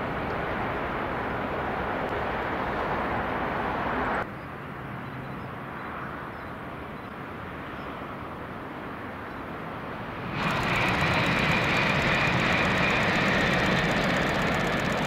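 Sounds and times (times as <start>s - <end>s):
bullet train rushing roar: 10.0s - 15.0s.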